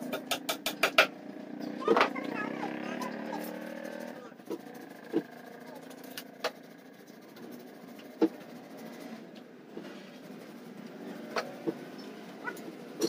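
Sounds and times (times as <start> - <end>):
tools and wood knocking: 0.0 - 1.2.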